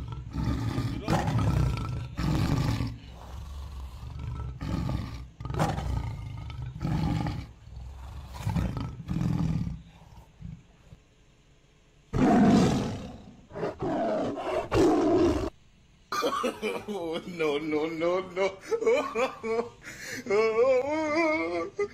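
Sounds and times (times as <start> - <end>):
tiger roaring and snarling: 0.0 - 10.8, 12.1 - 15.5.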